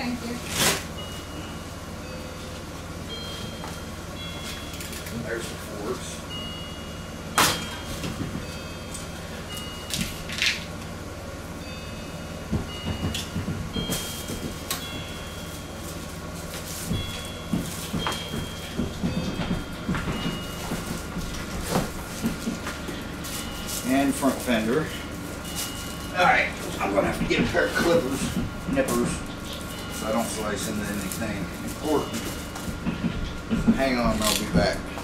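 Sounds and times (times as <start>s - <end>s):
low knocks: 16.9s - 22.6s
packaging rustling and scraping: 19.6s - 32.8s.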